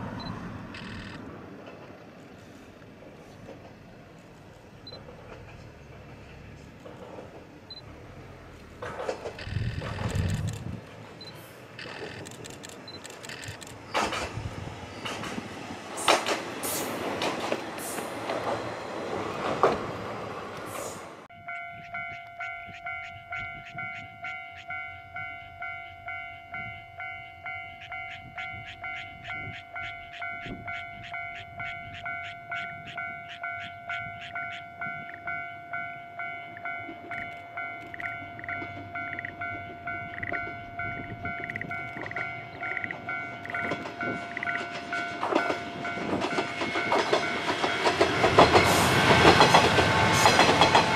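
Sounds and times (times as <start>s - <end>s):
diesel railcar passing: 0.0s - 50.9s
wheels clicking over rail joints: 0.7s - 20.9s, 21.5s - 50.9s
level crossing bell ringing: 21.3s - 46.7s.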